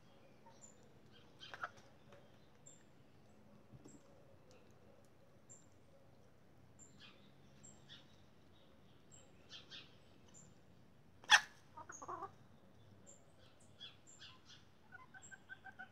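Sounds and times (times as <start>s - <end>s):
chickens pecking on concrete: 0.7s - 6.4s
chicken clucking: 1.4s - 1.9s, 11.2s - 12.4s, 14.9s - 15.9s.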